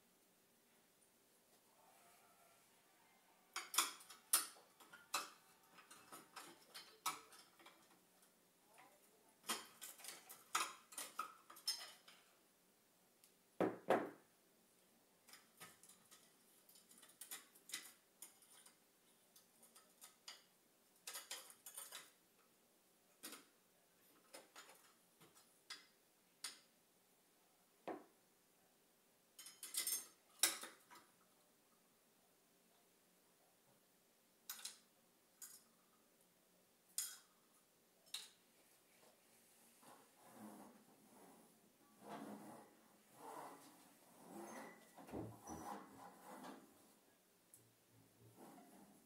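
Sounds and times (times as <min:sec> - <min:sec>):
ornaments and plant pots clinking: 0:03.5 - 0:12.4, 0:15.2 - 0:22.2, 0:29.3 - 0:31.2, 0:34.4 - 0:35.9, 0:36.9 - 0:38.5.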